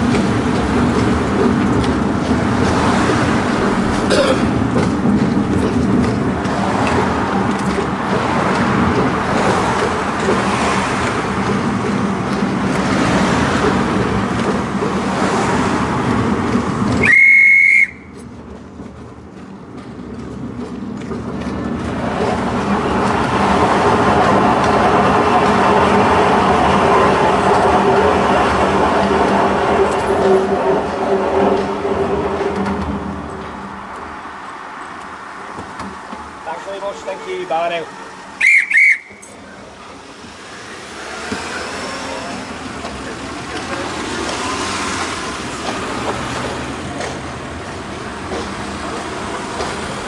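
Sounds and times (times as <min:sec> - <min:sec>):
tram wheels rumbling on rails: 0:00.0 - 0:50.0
short high whistle: 0:17.0 - 0:18.2, 0:38.4 - 0:39.3.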